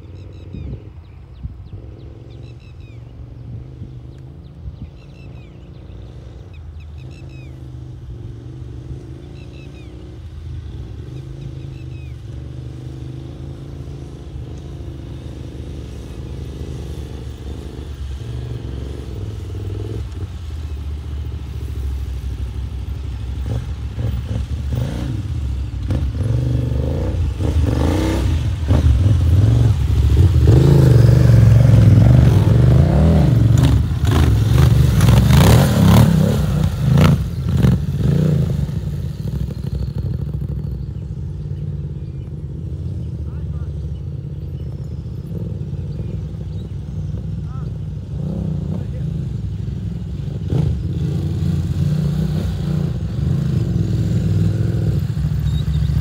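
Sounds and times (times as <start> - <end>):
motorcycles riding off-road: 0.0 - 56.0.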